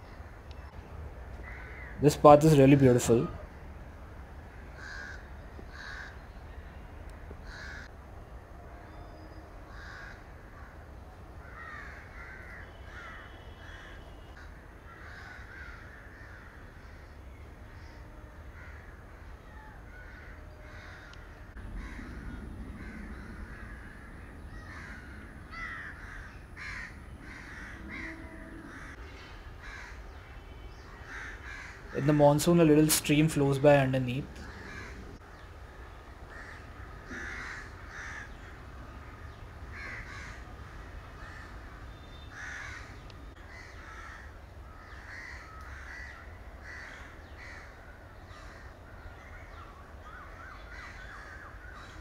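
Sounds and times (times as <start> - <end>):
crows cawing: 1.4 - 2.1, 4.5 - 6.2, 7.4 - 7.9, 9.7 - 17.2, 17.8 - 32.3, 34.3 - 35.4, 36.3 - 52.0
low rumble: 21.3 - 29.0.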